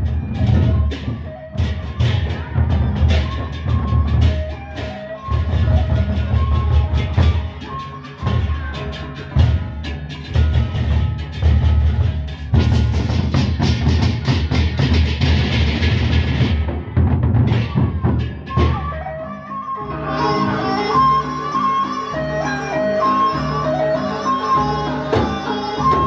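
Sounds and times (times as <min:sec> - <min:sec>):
barrel drums beaten: 0:00.0 - 0:18.9.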